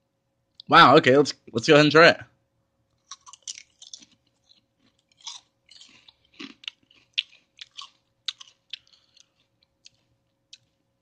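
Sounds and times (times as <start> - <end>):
chewing crisp chips: 2.9 - 11.0.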